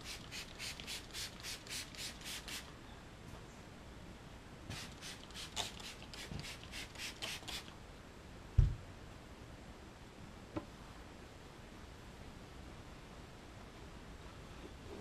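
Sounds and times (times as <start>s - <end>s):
spray bottle hissing sprays: 0.0s - 2.7s, 4.7s - 7.7s.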